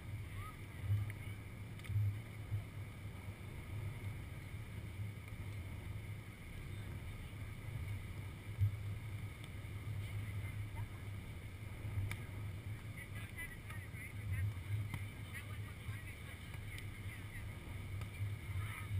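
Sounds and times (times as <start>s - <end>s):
wind buffeting microphone: 0.0s - 18.9s.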